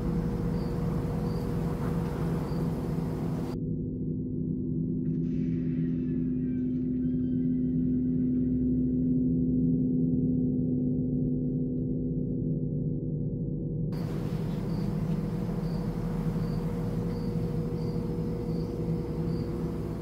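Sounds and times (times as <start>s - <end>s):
low muffled drone: 0.0s - 3.6s, 14.0s - 20.0s.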